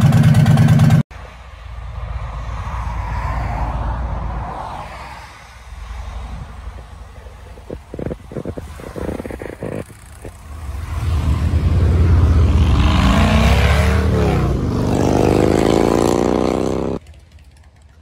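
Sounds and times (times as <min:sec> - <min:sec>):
motorcycle engine idling and revving: 0:00.0 - 0:01.4, 0:05.5 - 0:18.0.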